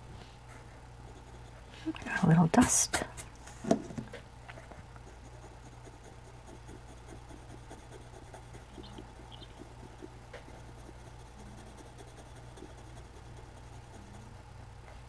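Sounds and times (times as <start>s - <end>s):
steady low hum: 0.0s - 15.0s
pencil scratching on paper: 1.1s - 2.2s, 5.0s - 14.3s.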